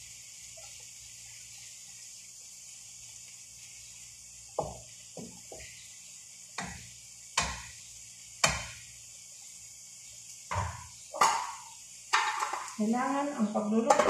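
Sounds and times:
wooden spatula knocking pan: 4.6 - 5.7, 6.6 - 7.7, 8.4 - 8.8, 10.5 - 12.8.

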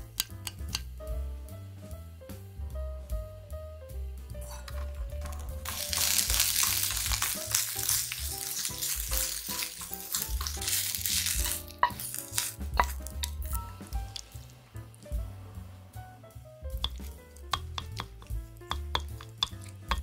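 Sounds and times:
sharp clicks: 0.0 - 0.9
peppers sizzling in oil: 4.4 - 20.0.

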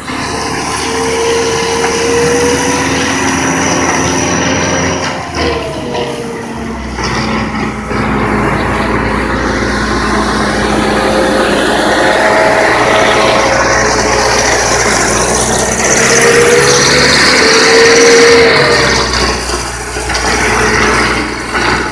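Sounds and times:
high whining tone: 0.0 - 21.6
diesel engine running: 0.0 - 21.9.

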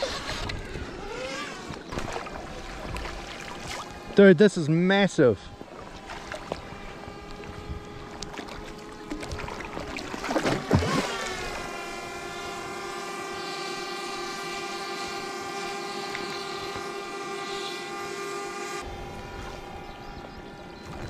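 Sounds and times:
swooping glide: 5.7 - 21.0.

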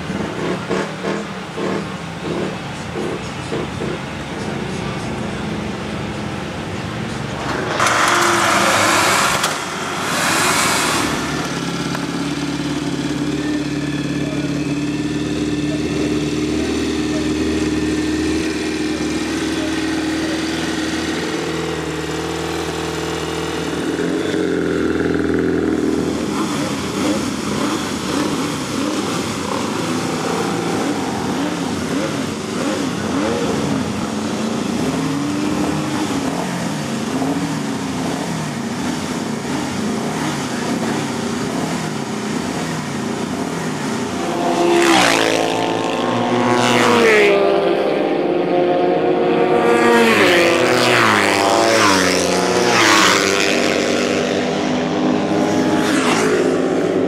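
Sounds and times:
motorcycle engine revving: 0.0 - 57.0
racing motorcycles passing: 0.0 - 57.0.

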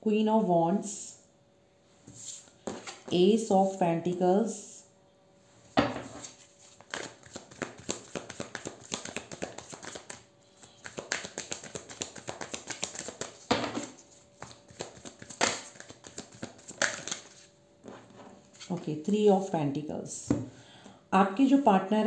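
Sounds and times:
cards being shuffled: 6.2 - 17.5
cards slapping down: 6.8 - 17.4.

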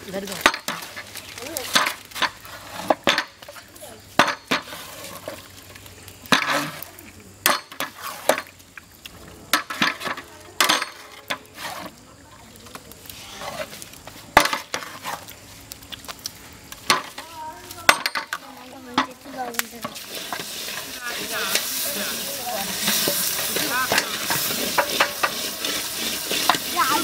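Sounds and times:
food sizzling: 0.0 - 27.0
metal spatula scraping in pot: 0.4 - 5.5, 7.5 - 8.5, 9.5 - 12.0, 13.1 - 13.8, 14.4 - 15.4, 19.0 - 27.0.

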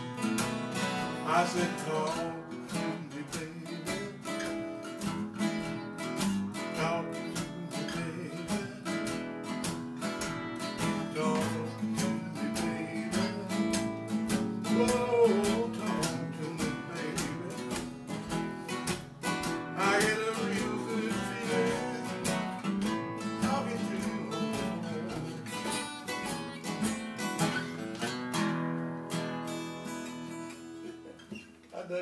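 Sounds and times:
acoustic guitars playing blues: 0.0 - 32.0.

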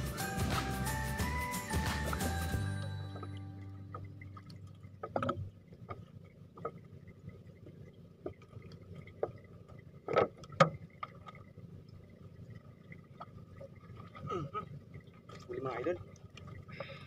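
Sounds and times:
water slaps and knocks: 0.0 - 2.4, 4.0 - 6.8
water lapping against boat hull: 3.0 - 17.0.

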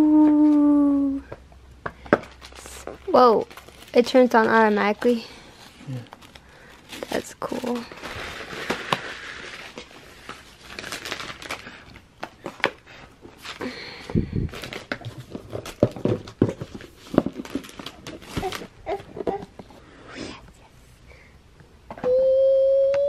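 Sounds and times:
cardboard and plastic wrap crinkling: 1.9 - 19.8.

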